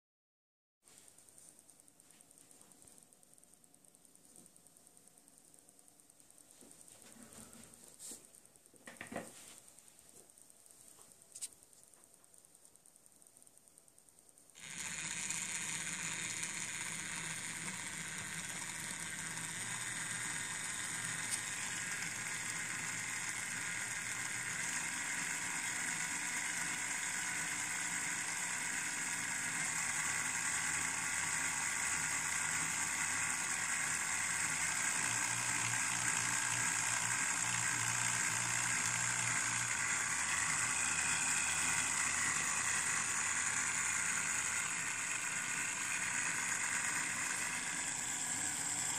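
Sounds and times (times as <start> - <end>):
small motor whirring: 10.3 - 48.9.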